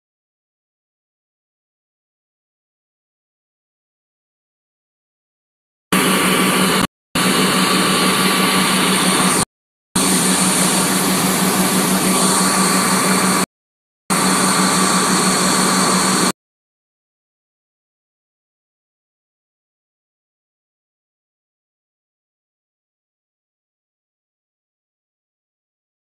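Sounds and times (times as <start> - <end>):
fire engine pump engine drone: 5.9 - 13.5, 14.1 - 16.4.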